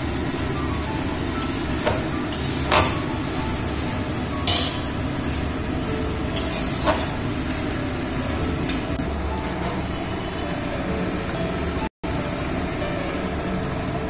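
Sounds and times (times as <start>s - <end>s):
paste sizzling in hot oil: 0.0s - 9.0s
metal spatula scraping pan: 0.2s - 10.2s.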